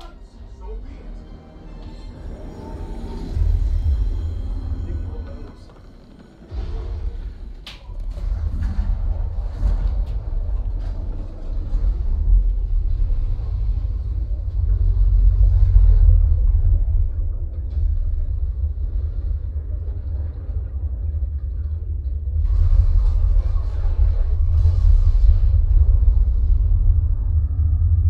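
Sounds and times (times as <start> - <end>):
deep bass rumble from subwoofers: 8.0 - 28.0.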